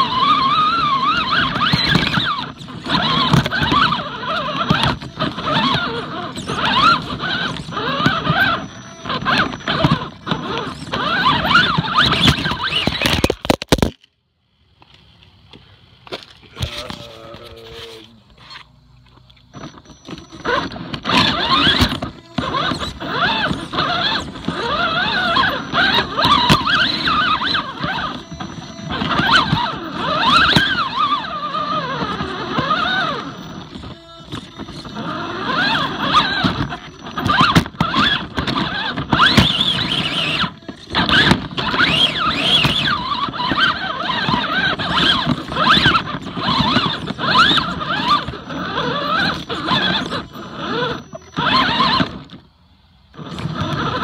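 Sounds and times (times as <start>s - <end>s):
electric motor whining: 0.0s - 13.9s, 16.1s - 54.0s
clicks and knocks on rocks: 11.8s - 14.2s
knocks of chassis and tyres: 19.2s - 50.2s.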